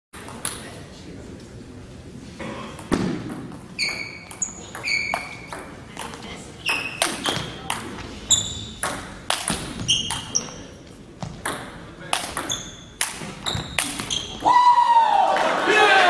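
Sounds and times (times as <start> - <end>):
ping pong ball hits: 8.8 - 10.4, 11.3 - 14.4.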